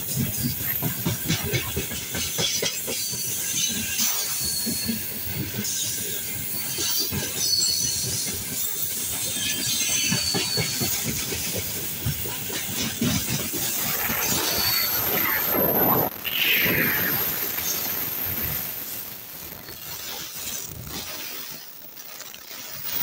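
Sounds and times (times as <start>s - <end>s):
freight train wheels clattering: 0.0s - 15.0s.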